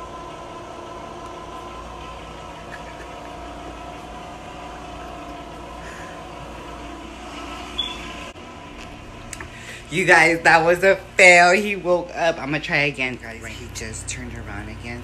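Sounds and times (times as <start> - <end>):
mechanical hum: 0.0 - 15.0.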